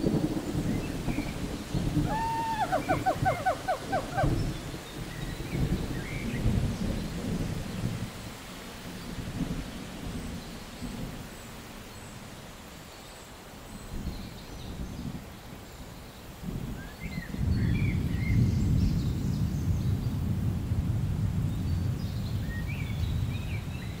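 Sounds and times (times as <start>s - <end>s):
birds chirping: 0.2s - 7.4s.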